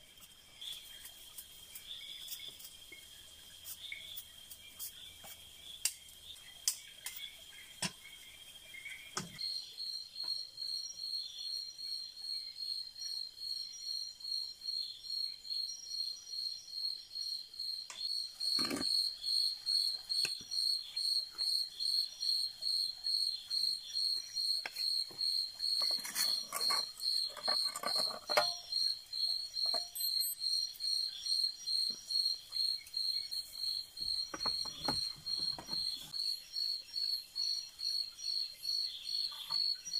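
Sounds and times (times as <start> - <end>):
cricket chirping: 0.0 - 39.9
soft rustles and knocks: 34.0 - 36.1.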